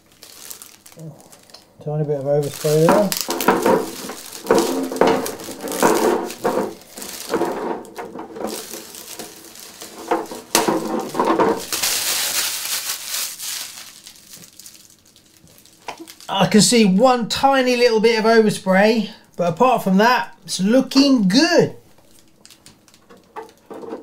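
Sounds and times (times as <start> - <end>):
plastic film crinkling: 0.0 - 17.0, 21.8 - 24.0.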